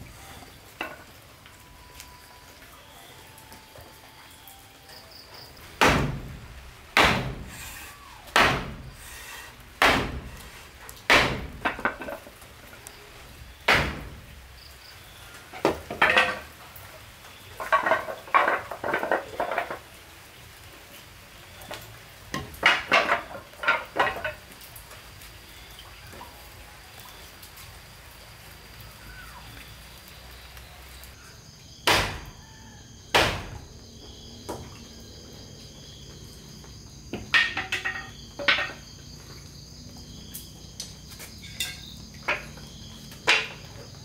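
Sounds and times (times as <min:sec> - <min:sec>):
hammer striking wood: 0:05.8 - 0:06.4, 0:07.0 - 0:07.6, 0:08.4 - 0:08.9, 0:09.8 - 0:10.4, 0:11.1 - 0:11.9, 0:13.7 - 0:14.2, 0:31.8 - 0:32.3, 0:33.1 - 0:33.6.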